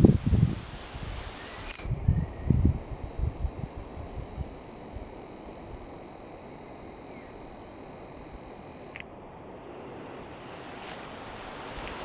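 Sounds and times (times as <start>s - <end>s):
wind rumbling on microphone: 0.0s - 5.8s
steady high whine: 1.5s - 12.0s.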